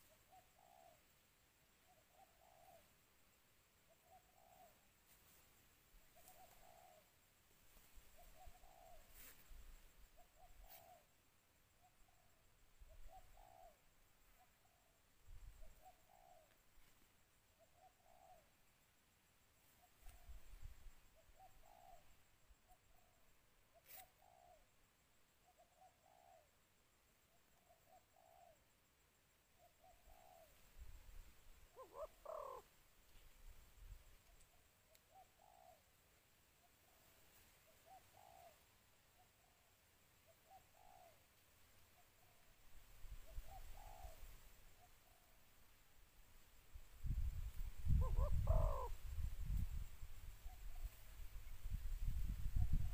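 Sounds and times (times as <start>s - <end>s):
dove cooing: 0.0s - 1.0s, 1.8s - 2.9s, 3.9s - 4.8s, 6.1s - 7.1s, 8.1s - 9.4s, 10.1s - 11.1s, 12.9s - 13.8s, 15.6s - 16.6s, 17.6s - 18.5s, 21.2s - 22.1s, 24.1s - 24.7s, 25.4s - 26.5s, 27.6s - 28.6s, 29.6s - 30.9s, 31.7s - 32.7s, 35.1s - 35.9s, 37.6s - 38.6s, 40.3s - 41.2s, 43.1s - 45.4s, 47.1s - 49.7s
dove cooing faintly: 0.0s - 1.1s, 1.8s - 3.0s, 3.8s - 18.8s, 19.6s - 45.7s, 47.0s - 52.9s.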